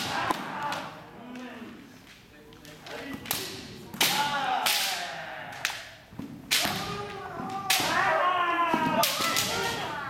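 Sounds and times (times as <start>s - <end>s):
fencers shouting: 6.5s - 10.0s.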